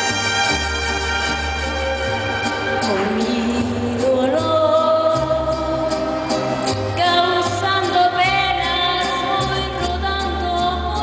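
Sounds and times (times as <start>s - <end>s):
mariachi band playing: 0.0s - 11.0s
woman singing: 2.8s - 11.0s.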